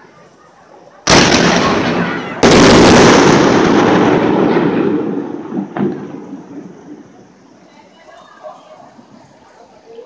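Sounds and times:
fireworks rumble: 0:00.0 - 0:09.9
fireworks booming: 0:01.0 - 0:07.7.

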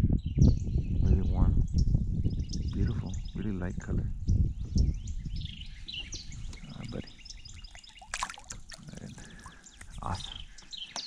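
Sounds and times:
songbirds chirping: 0:00.1 - 0:11.0
fish splashing into water: 0:07.5 - 0:09.9.

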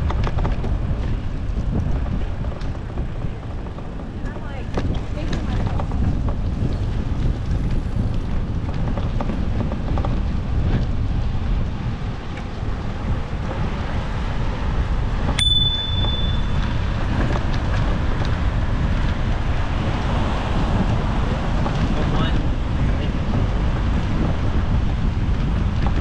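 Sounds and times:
wind rushing over microphone: 0:00.0 - 0:26.0
bicycle bell ding: 0:15.4 - 0:16.8.

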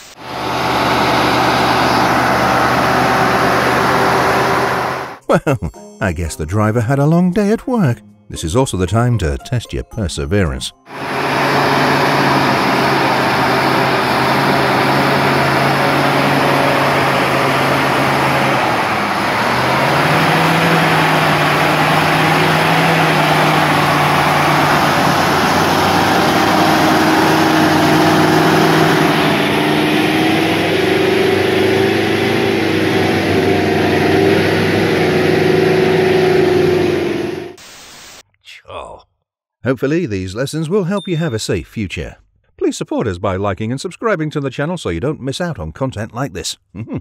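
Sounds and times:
diesel truck engine under load: 0:00.0 - 0:05.2, 0:10.9 - 0:37.6
high whine: 0:00.0 - 0:05.2, 0:10.9 - 0:37.6.

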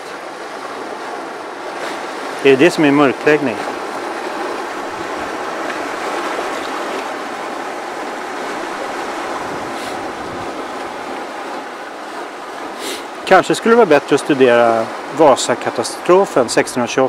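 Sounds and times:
waves breaking on rocky shore: 0:00.0 - 0:17.0.

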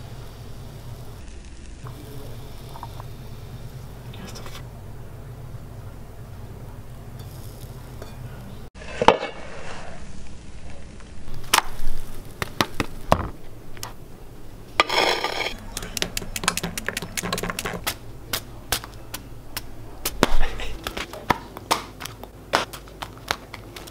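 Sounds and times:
low steady hum: 0:00.0 - 0:23.9
spatula scraping frying pan: 0:14.8 - 0:17.9
utensils and plates clattering: 0:14.8 - 0:17.9.

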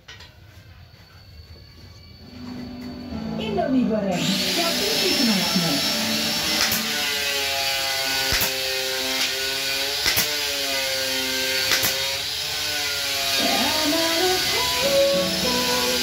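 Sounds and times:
rising note run: 0:02.2 - 0:07.3, 0:13.5 - 0:16.0
background music with bending tones: 0:02.3 - 0:07.2, 0:13.4 - 0:16.0
sharp click: 0:06.5 - 0:06.9, 0:08.3 - 0:08.6, 0:11.7 - 0:12.0.

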